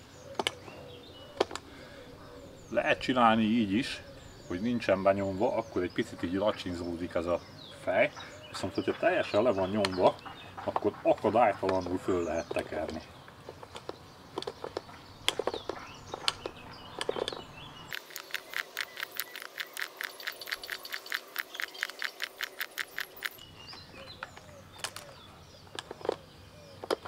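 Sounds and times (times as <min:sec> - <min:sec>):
spool ratchet clicks: 0:17.9 - 0:23.4.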